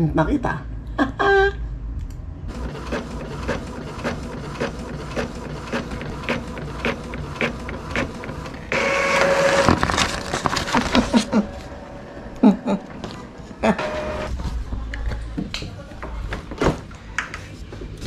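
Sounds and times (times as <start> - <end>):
printer whir feeding paper: 2.5 - 12.3, 12.9 - 14.4.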